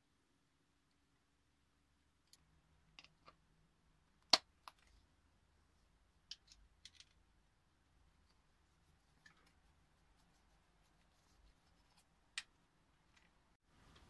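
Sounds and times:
small plastic parts clicking: 2.2 - 3.4, 6.2 - 7.2.

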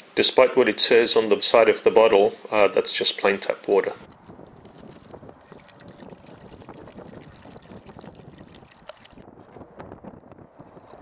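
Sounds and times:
water pouring into plastic jug: 5.4 - 9.2.

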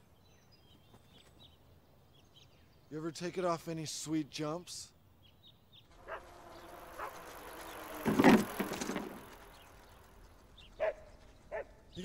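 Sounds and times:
bicycle rolling and rattling: 5.8 - 12.0
bicycle landing with clattering thump: 8.0 - 9.3.

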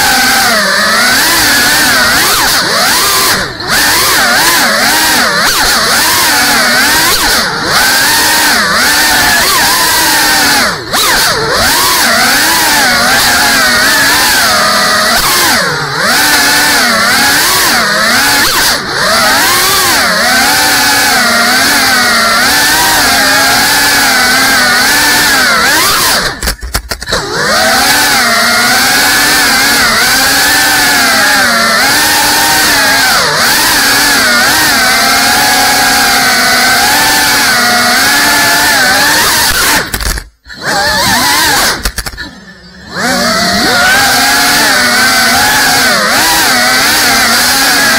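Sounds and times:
drone propellers buzzing: 0.0 - 47.9.

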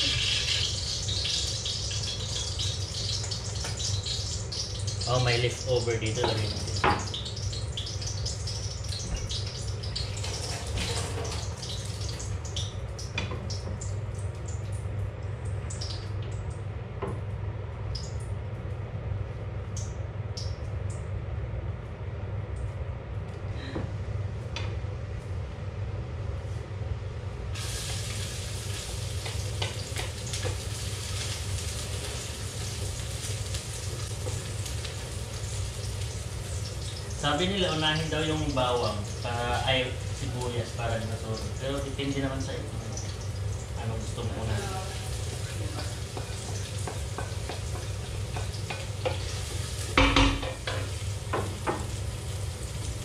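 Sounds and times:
oil sizzling in a wok: 0.0 - 16.2, 27.5 - 53.0
steady low hum: 0.0 - 53.0.

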